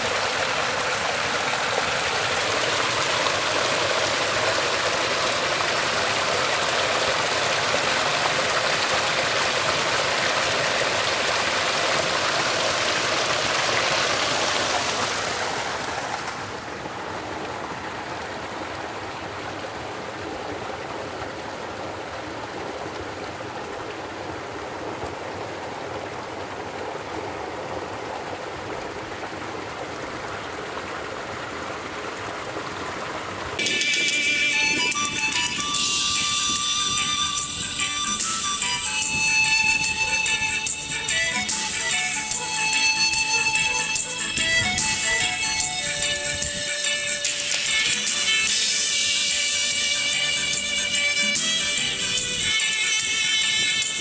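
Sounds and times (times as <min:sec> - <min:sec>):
fountain water splashing into trough: 0:00.0 - 0:38.2
water running over rock: 0:00.0 - 0:38.2.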